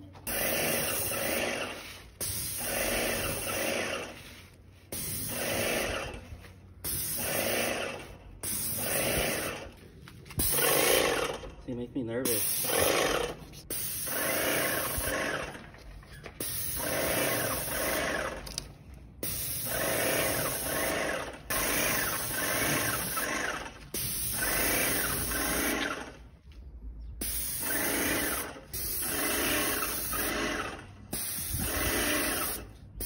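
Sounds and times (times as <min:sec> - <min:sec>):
sprayer pump running: 0:00.2 - 0:04.3, 0:05.2 - 0:06.2, 0:07.0 - 0:09.7, 0:12.4 - 0:13.4, 0:14.1 - 0:15.7, 0:16.5 - 0:18.6, 0:19.4 - 0:26.1, 0:27.6 - 0:32.6
paint sprayer spraying: 0:00.2 - 0:11.4, 0:12.2 - 0:15.8, 0:16.4 - 0:18.6, 0:19.2 - 0:26.2, 0:27.2 - 0:33.0.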